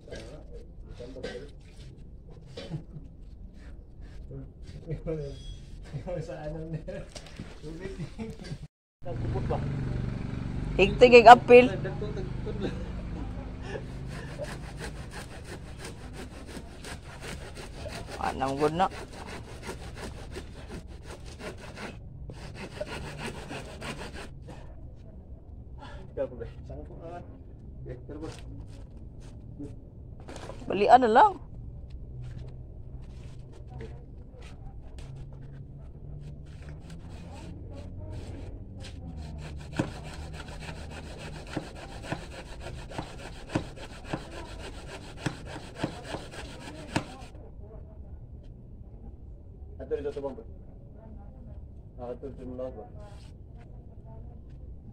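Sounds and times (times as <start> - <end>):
hand saw cutting wood: 13.7 - 24.6, 36.5 - 47.3.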